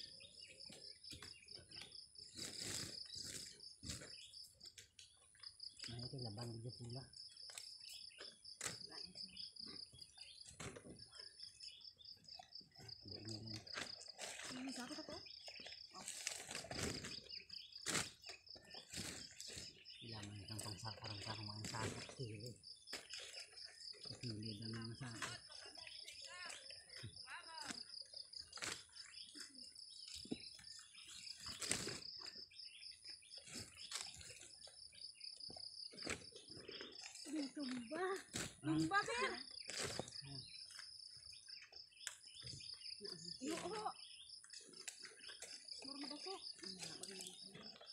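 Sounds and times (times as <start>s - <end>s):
insects trilling: 0.0s - 47.9s
sugarcane stalks rustling and knocking: 30.1s - 32.4s.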